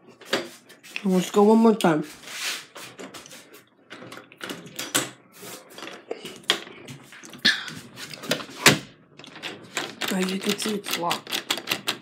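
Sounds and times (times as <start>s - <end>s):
door knob clicks and knocks: 9.2s - 12.0s.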